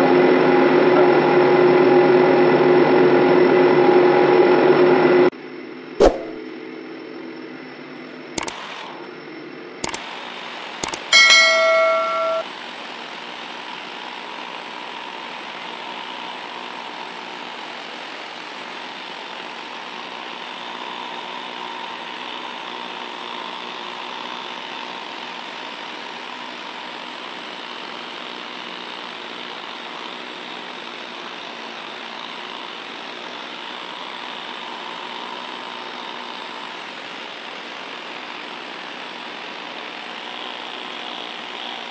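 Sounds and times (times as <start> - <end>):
needle scaler hammering metal: 6.0 - 6.4, 10.8 - 12.4
bell-like chime: 10.8 - 12.4
clicks: 10.8 - 12.4.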